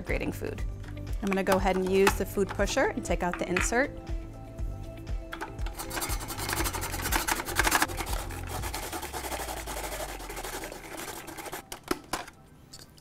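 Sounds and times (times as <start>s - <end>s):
rotary grater shredding carrots: 5.8s - 11.7s.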